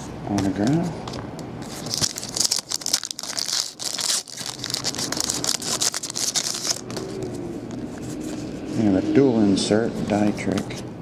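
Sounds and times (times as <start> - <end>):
foil wrapper tearing and crinkling: 1.7 - 7.3.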